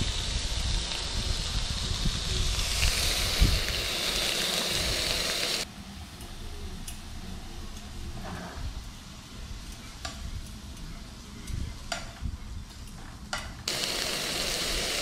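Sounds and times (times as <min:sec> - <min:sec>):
beef sizzling in a frying pan: 0:00.0 - 0:05.7, 0:13.7 - 0:15.0.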